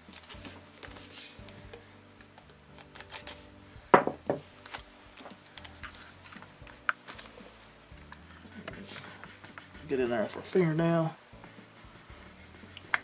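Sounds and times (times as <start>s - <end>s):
tape clicks and crinkles: 0.0s - 1.1s, 2.2s - 3.4s, 4.6s - 8.8s
tape tearing: 2.7s - 3.4s.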